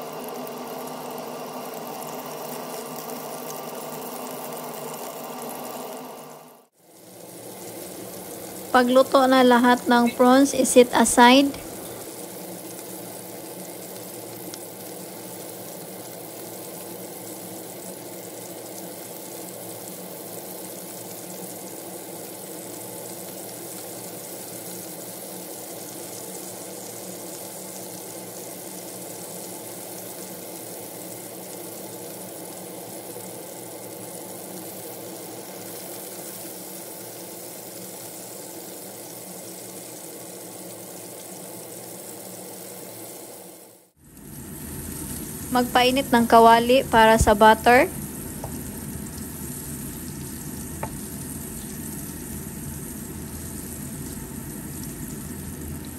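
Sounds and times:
prawns sizzling in hot oil: 0:00.0 - 0:55.9
constant hum: 0:07.6 - 0:12.1, 0:44.2 - 0:55.9.

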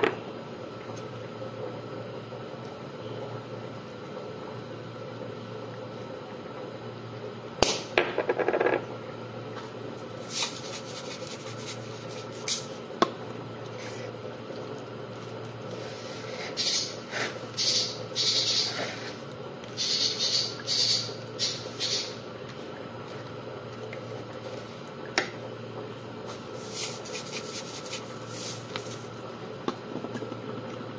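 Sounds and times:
steady background hum: 0:00.0 - 0:30.9
spice shaker rattling: 0:10.3 - 0:12.6.

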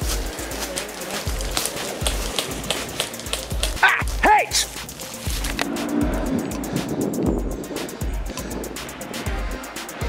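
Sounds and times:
music with deep beat: 0:00.0 - 0:10.0.

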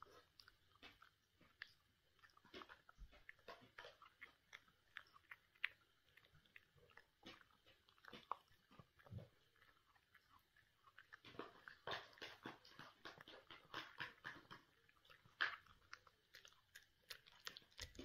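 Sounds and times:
puppy chewing: 0:00.0 - 0:18.0.

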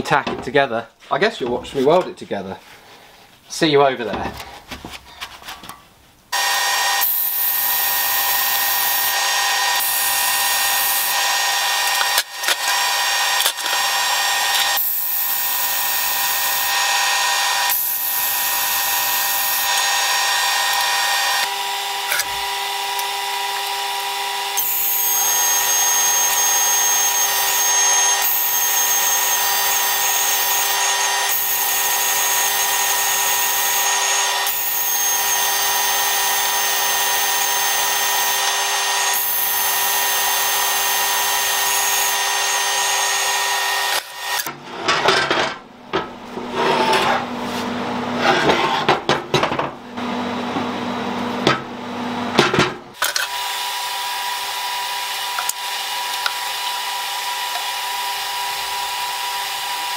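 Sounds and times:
wire wheel power tool whine: 0:06.3 - 0:44.5, 0:52.9 - 0:59.9.

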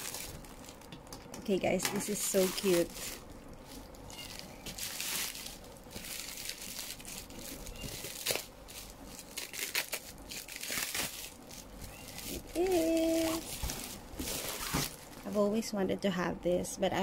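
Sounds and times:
plastic bag crinkling: 0:00.0 - 0:15.8.

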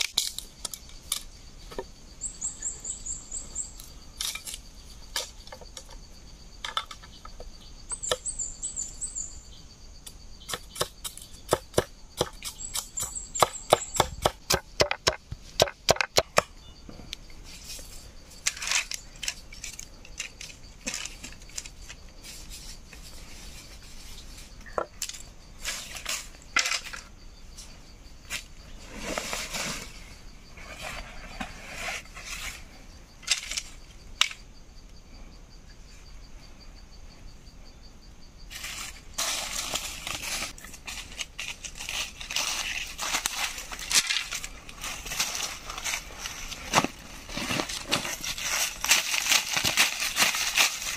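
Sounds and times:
faint insect-like tone: 0:00.0 - 0:50.9
bird chirping: 0:01.6 - 0:04.2, 0:06.8 - 0:11.5, 0:12.2 - 0:14.3, 0:16.5 - 0:17.3
machete knocking on bamboo: 0:13.4 - 0:16.6
bamboo strips scraping and rustling: 0:17.4 - 0:33.8, 0:38.5 - 0:50.9.

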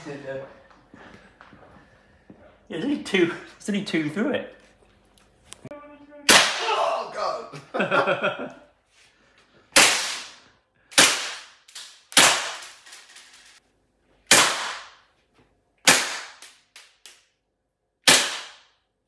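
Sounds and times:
bb gun shots cracking: 0:06.3 - 0:06.7, 0:11.0 - 0:12.8, 0:14.3 - 0:15.0, 0:15.9 - 0:16.5, 0:18.1 - 0:18.7.

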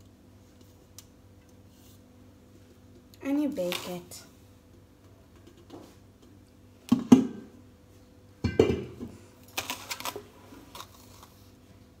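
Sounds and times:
metal pan knocking on tile: 0:08.4 - 0:09.0.

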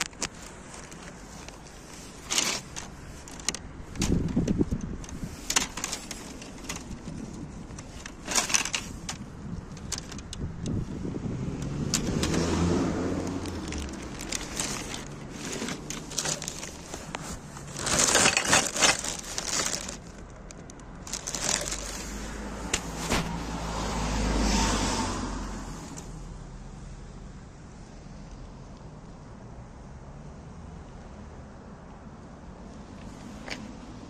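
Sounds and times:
plastic bags crackling: 0:00.0 - 0:10.3, 0:11.9 - 0:23.6
car passing: 0:10.7 - 0:20.0, 0:21.0 - 0:26.8.

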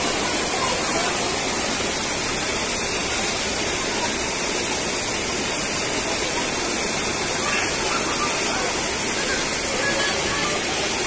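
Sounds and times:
stream water rushing over rocks: 0:00.0 - 0:11.0.

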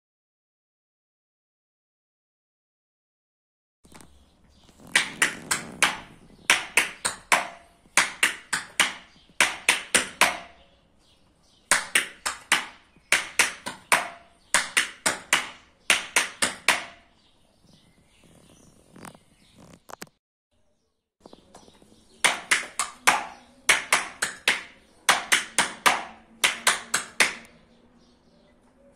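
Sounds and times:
tap shoes clicking on board: 0:04.7 - 0:10.5, 0:11.7 - 0:17.0.

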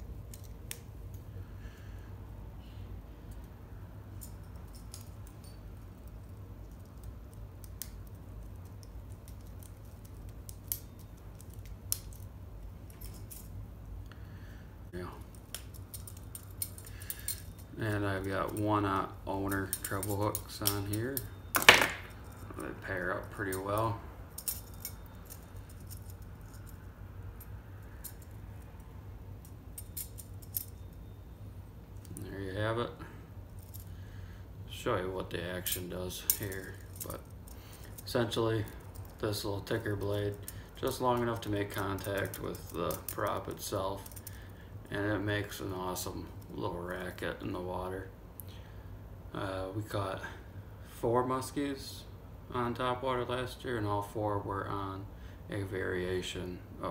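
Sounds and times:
steady low hum: 0:00.0 - 0:56.9
light metallic clinks: 0:04.1 - 0:07.1, 0:15.2 - 0:18.7, 0:19.5 - 0:31.2
metal clicks of pliers: 0:19.6 - 0:22.4, 0:23.5 - 0:26.7.

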